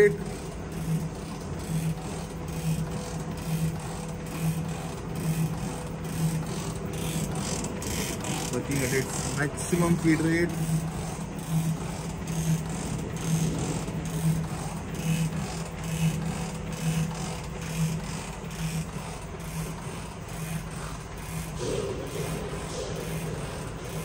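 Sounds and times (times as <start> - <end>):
pulsing machine hum: 0.0 - 24.0
rough mechanical noise: 0.0 - 24.0.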